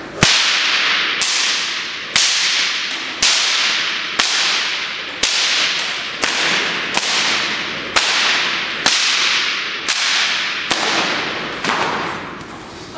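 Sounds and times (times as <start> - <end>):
bullwhip cracks with echo: 0.1 - 12.7.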